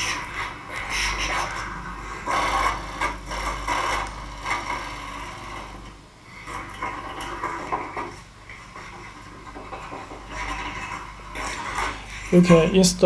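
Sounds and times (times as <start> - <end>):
metal module scraping along rail: 0.0 - 13.0.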